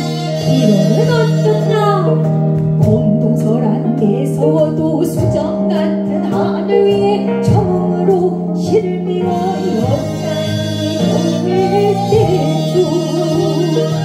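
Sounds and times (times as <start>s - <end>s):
traditional ensemble playing a pop song: 0.0s - 14.0s.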